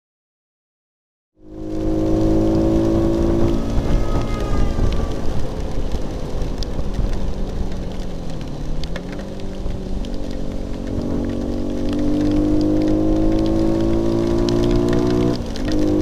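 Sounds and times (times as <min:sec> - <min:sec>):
rain hiss and road spray: 0:01.4 - 0:16.0
raindrop ticks: 0:01.4 - 0:16.0.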